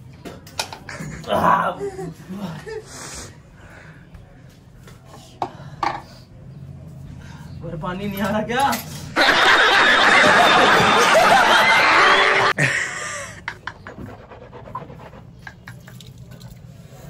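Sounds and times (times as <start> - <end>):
audience laughter: 9.2 - 14.1.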